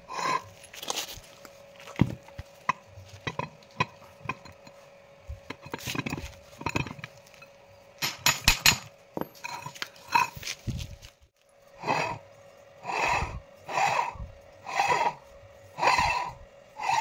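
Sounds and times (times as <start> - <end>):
heavy steel parts clanking: 5.5 - 10.4.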